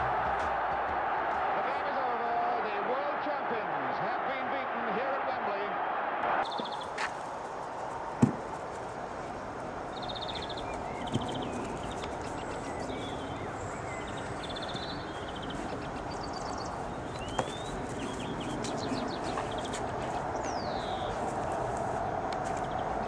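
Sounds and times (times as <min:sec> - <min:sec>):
small birds chirping: 0:06.4 - 0:23.0
sharp knocks: 0:08.2 - 0:08.4.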